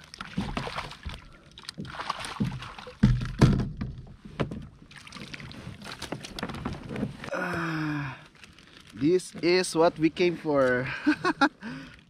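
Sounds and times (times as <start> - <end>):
knocks and thumps on plastic kayak: 0.2 - 1.2, 1.8 - 7.3.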